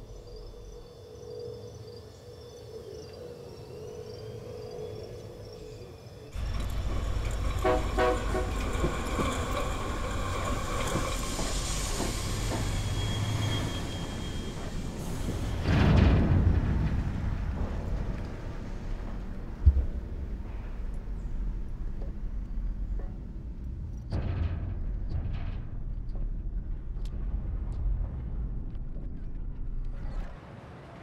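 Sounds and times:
faint insect chirping: 0:00.0 - 0:15.6
diesel locomotive rumbling: 0:06.4 - 0:28.2
short train horn toots: 0:07.5 - 0:08.7.

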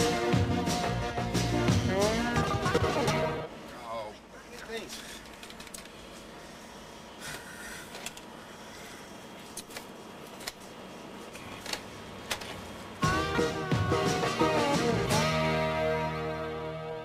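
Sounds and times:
guitar music: 0:13.0 - 0:17.0.

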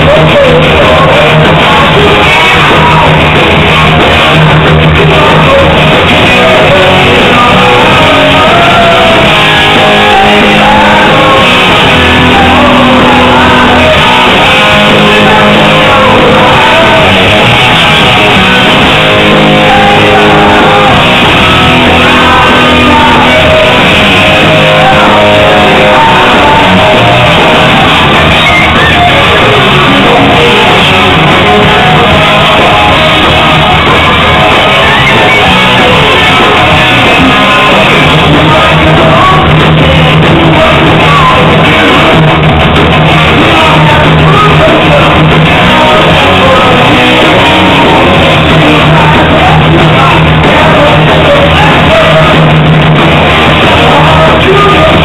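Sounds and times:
bass guitar: 0:00.0 - 0:55.0
drums: 0:00.0 - 0:55.0
electric guitars: 0:00.0 - 0:55.0.

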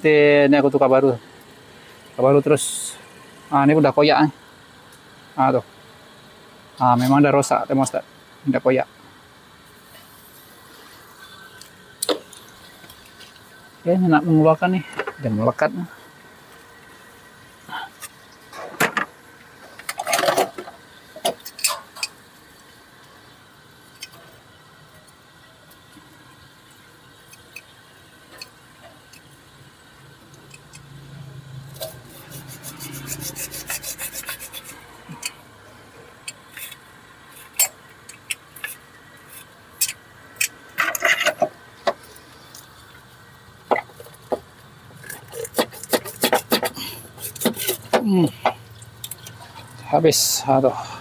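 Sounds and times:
pliers scraping and knocking on metal: 0:37.4 - 0:42.0, 0:45.0 - 0:48.1.

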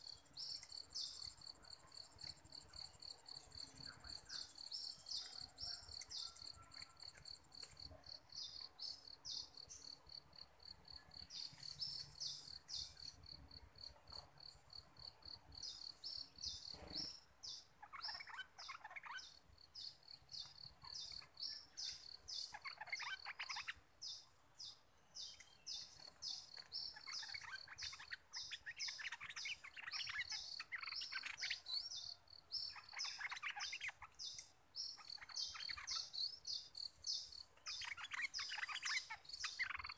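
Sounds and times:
insect chirping: 0:00.0 - 0:39.9
bird singing bubbling phrases: 0:20.8 - 0:23.8, 0:32.7 - 0:39.9.

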